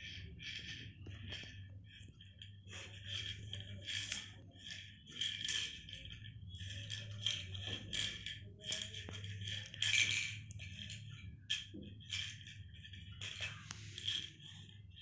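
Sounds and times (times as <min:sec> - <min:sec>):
pills rattling in plastic bottle: 0:02.8 - 0:11.2, 0:12.0 - 0:15.0.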